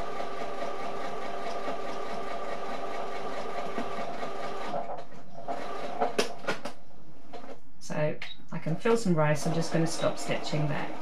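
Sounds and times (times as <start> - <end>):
sewing machine stitching: 0.0 - 6.5, 9.4 - 11.0.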